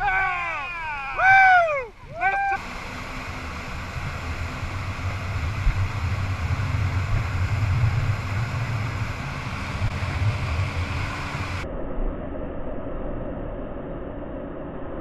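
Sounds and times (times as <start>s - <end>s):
churning wake: 0.0s - 11.6s
motorboat engine drone: 0.0s - 14.6s
wind rushing: 2.7s - 15.0s.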